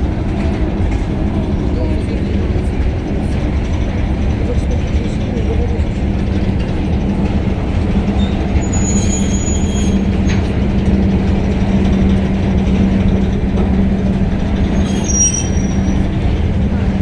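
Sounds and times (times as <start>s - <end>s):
electric locomotive rumbling: 0.0s - 17.0s
faint high metallic squeal: 14.8s - 16.0s.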